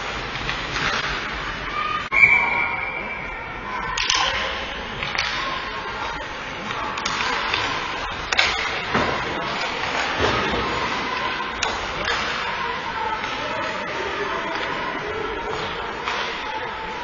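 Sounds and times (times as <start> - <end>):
hockey sticks and puck clacking: 0.3 - 1.4, 3.9 - 5.7, 6.6 - 14.9, 15.5 - 16.9.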